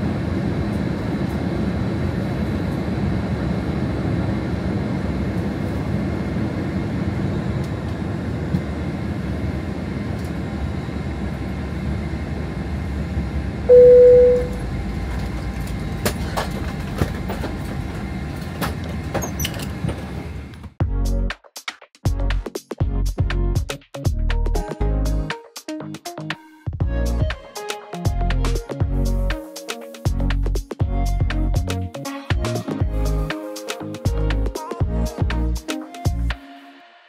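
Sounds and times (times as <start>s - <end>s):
airliner cabin rumble: 0.0s - 20.7s
loud chime tone: 13.7s - 14.6s.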